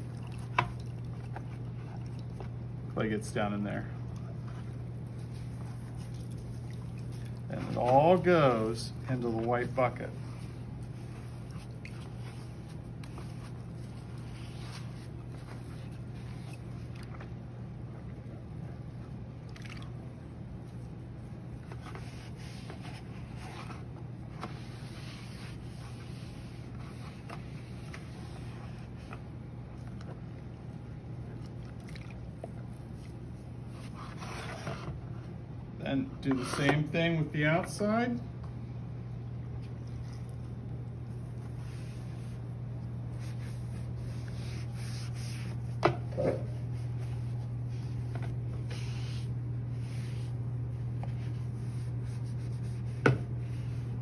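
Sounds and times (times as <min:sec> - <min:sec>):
steady low hum: 0:00.0 - 0:54.0
sponge rubbing and scraping: 0:07.5 - 0:16.8, 0:21.7 - 0:29.2, 0:43.1 - 0:54.0.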